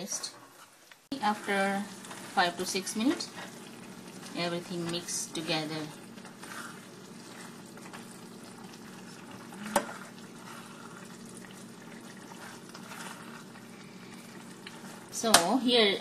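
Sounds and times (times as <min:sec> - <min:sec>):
spatula stirring: 0:00.0 - 0:15.5
thick sauce simmering in a pan: 0:01.0 - 0:15.2.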